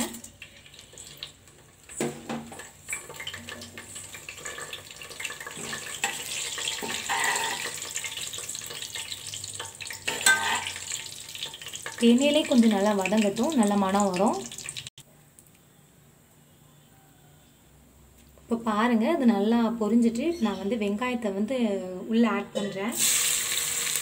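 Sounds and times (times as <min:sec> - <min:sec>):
spices sizzling in hot oil: 0:00.0 - 0:15.0, 0:22.6 - 0:24.0
steel spoon scraping pot: 0:05.6 - 0:08.1, 0:10.1 - 0:11.0.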